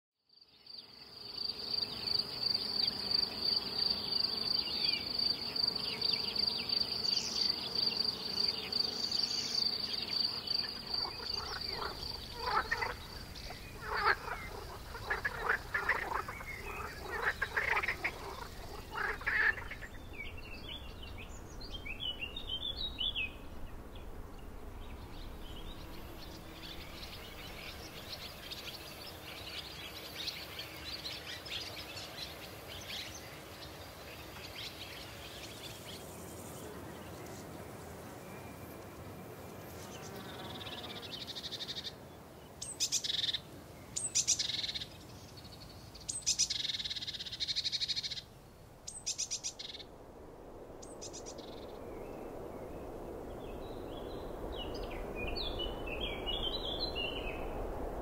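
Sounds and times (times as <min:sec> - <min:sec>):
songbird chirps: 0:00.3 - 0:58.0
soft even hiss: 0:00.6 - 0:58.0
bird calls: 0:09.2 - 0:24.1
cricket trill: 0:10.1 - 0:20.0
frog chorus croaking: 0:10.5 - 0:20.1.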